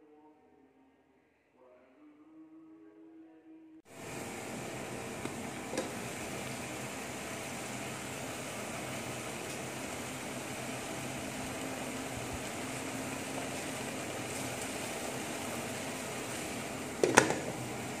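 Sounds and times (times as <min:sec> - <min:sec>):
steady hiss: 0:03.9 - 0:18.0
metal pot lid clanging: 0:17.0 - 0:17.6.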